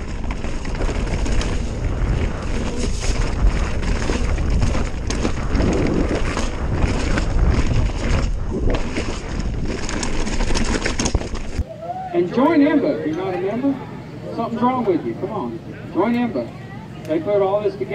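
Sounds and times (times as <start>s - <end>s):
bike rattling over rocks: 0.0s - 11.6s
wind rushing over microphone: 0.0s - 11.6s
bike tyres rumbling: 0.0s - 11.7s.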